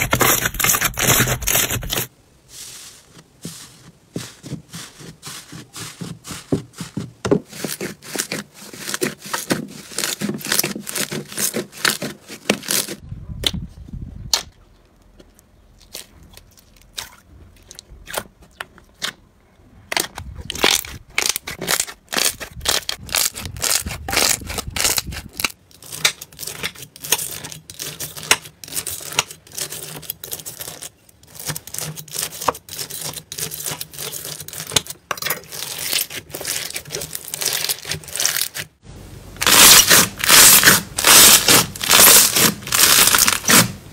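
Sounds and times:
knife cutting slime: 0:07.5 - 0:13.0, 0:20.5 - 0:38.6
crunchy slime crackling: 0:19.9 - 0:38.8, 0:39.4 - 0:43.8.

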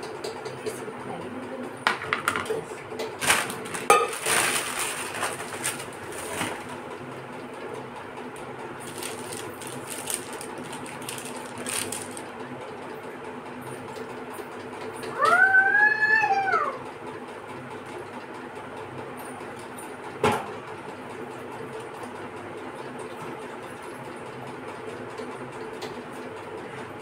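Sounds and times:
room fan humming: 0:00.0 - 0:27.0
kitchen utensils clattering: 0:03.2 - 0:06.7.

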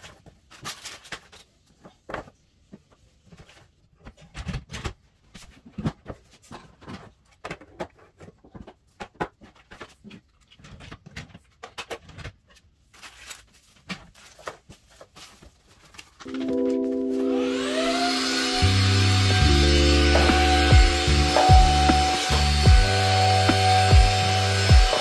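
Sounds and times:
music: 0:16.3 - 0:25.0.

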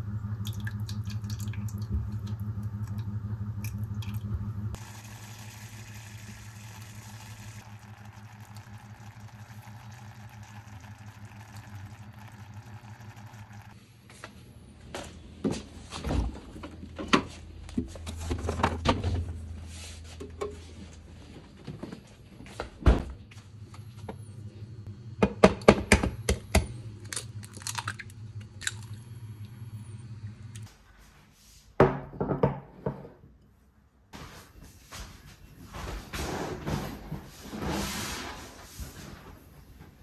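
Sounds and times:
low steady hum: 0:00.0 - 0:21.8, 0:23.0 - 0:30.8.

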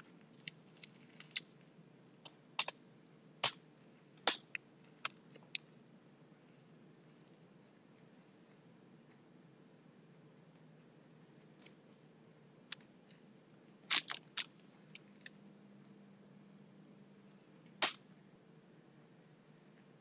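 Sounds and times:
faint room hum: 0:00.0 - 0:20.0.

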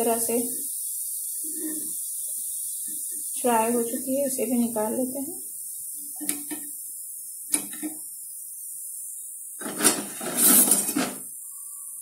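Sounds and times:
steel spoon scraping steel pan: 0:01.4 - 0:02.0, 0:09.6 - 0:11.2.

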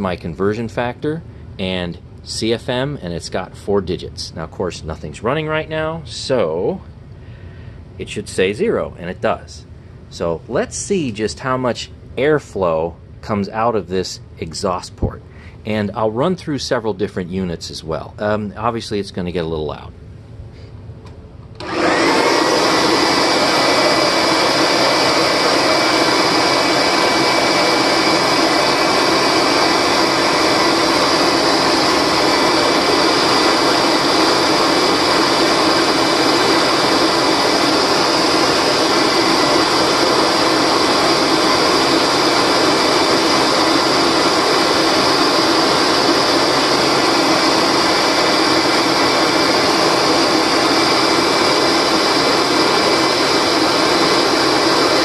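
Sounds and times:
vacuum cleaner motor running: 0:21.6 - 0:55.0.

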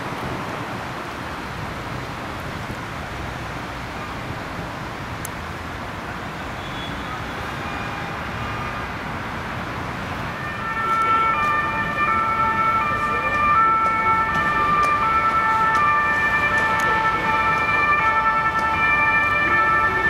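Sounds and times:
city traffic noise: 0:00.0 - 0:20.0
two-tone siren: 0:06.5 - 0:09.0, 0:10.2 - 0:20.0.

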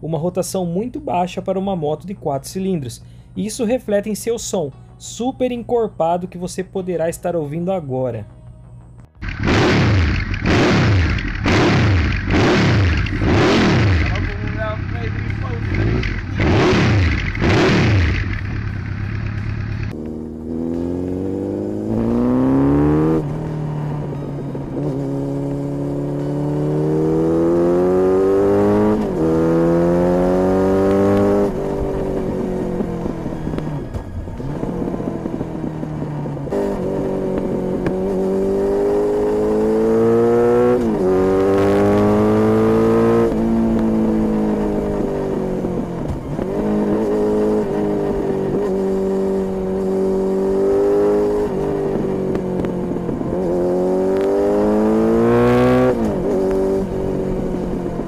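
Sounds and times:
motorcycle engine accelerating: 0:08.7 - 0:58.0.

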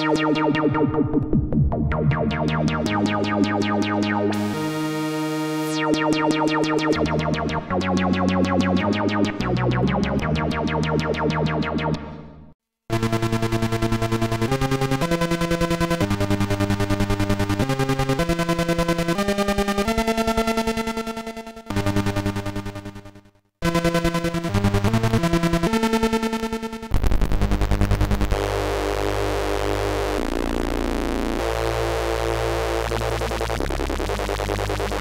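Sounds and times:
buzzy synthesizer melody: 0:00.0 - 0:35.0
deep bass synth tone: 0:00.1 - 0:04.8.

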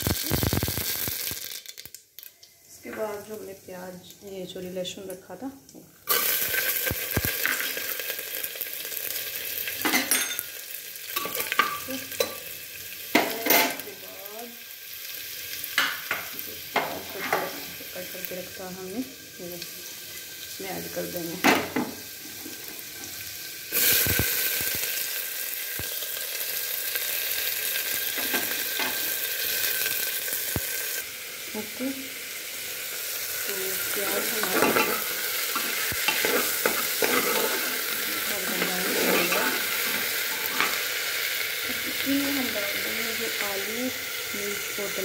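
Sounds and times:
spices sizzling in hot oil: 0:00.0 - 0:45.0
spoon scraping a pot: 0:34.4 - 0:37.9, 0:38.5 - 0:40.8.

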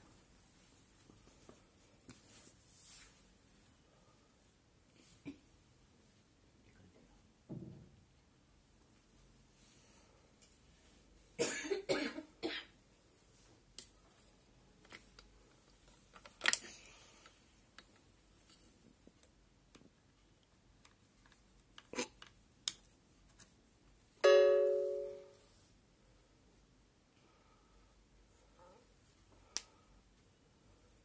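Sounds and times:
person coughing: 0:11.4 - 0:12.8
short pitched ringing tone: 0:24.2 - 0:25.4.

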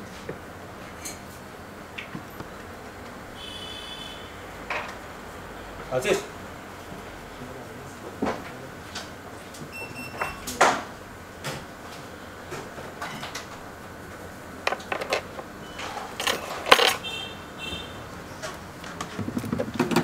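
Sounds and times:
tools clicking and knocking on bench: 0:14.6 - 0:15.5, 0:16.1 - 0:17.1.

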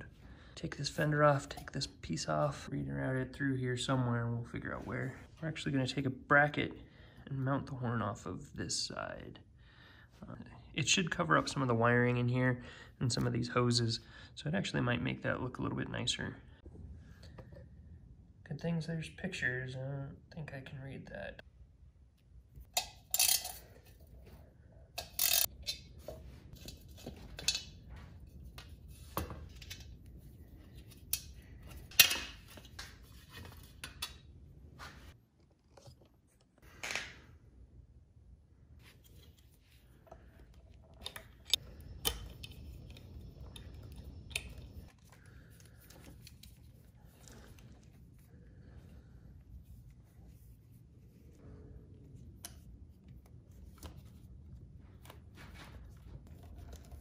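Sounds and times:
metal tools and parts clinking: 0:22.7 - 0:24.1, 0:25.0 - 0:27.8
metal parts clattering: 0:22.8 - 0:23.8, 0:25.0 - 0:25.8.

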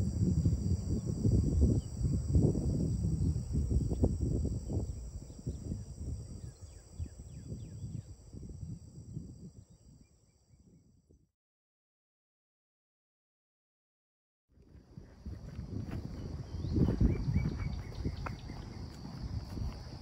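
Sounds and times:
high insect chorus: 0:00.0 - 0:11.2, 0:14.6 - 0:20.0
wind rumble on microphone: 0:00.0 - 0:11.3, 0:14.6 - 0:20.0
bird chirping: 0:16.4 - 0:18.8.

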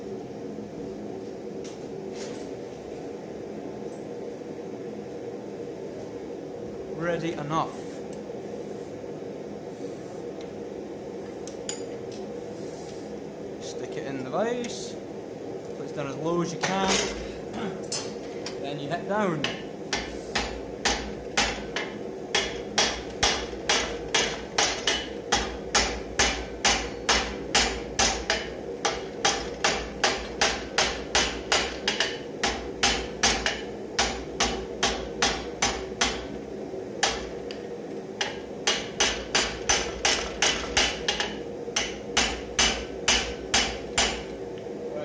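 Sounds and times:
hammer striking hot metal: 0:19.4 - 0:36.4, 0:37.0 - 0:37.4, 0:38.2 - 0:44.4.

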